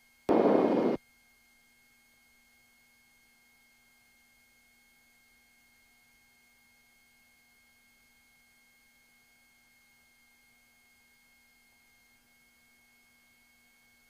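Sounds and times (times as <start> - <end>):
faint low hum: 0.3 - 1.0
faint steady hiss: 0.3 - 1.0.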